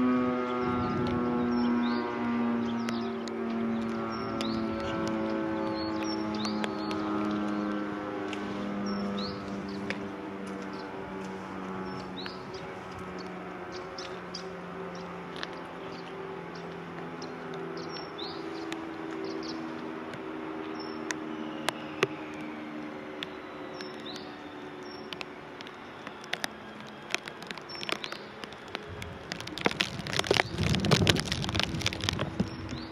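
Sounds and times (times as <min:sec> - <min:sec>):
engine humming: 0:00.0 - 0:32.9
bird chirps: 0:00.5 - 0:07.8, 0:08.4 - 0:11.0, 0:11.8 - 0:19.8, 0:20.6 - 0:28.8
sharp clicks: 0:23.2 - 0:32.9.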